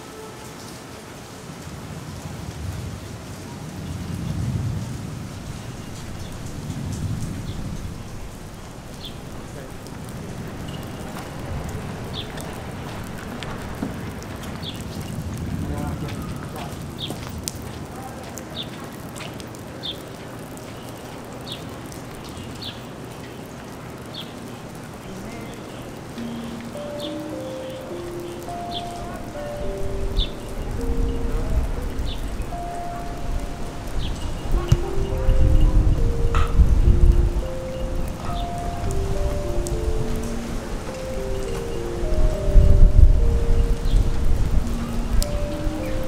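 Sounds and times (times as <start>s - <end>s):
steady rain falling: 0.0s - 46.0s
thunder rumbling: 1.6s - 46.0s
bird chirping: 25.2s - 35.8s.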